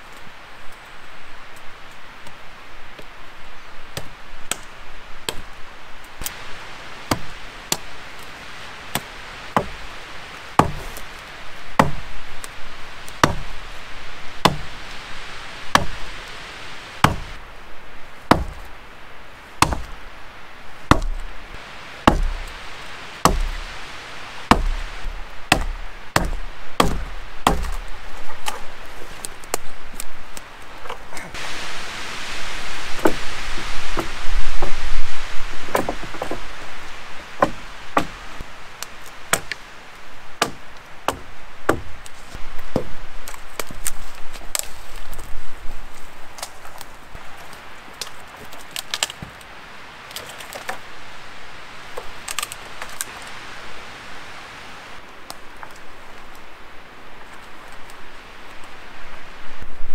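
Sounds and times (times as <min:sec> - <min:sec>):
axe chopping wood: 0:08.9 - 0:09.8, 0:10.6 - 0:11.0, 0:11.8 - 0:12.1, 0:13.2 - 0:13.6, 0:14.4 - 0:14.7, 0:15.7 - 0:16.0, 0:17.0 - 0:17.4, 0:18.3 - 0:18.7, 0:19.6 - 0:20.0, 0:20.9 - 0:21.2, 0:22.0 - 0:22.6, 0:23.2 - 0:23.7, 0:24.5 - 0:28.6, 0:35.7 - 0:36.4, 0:37.4 - 0:38.2, 0:39.3 - 0:39.6, 0:40.4 - 0:42.0.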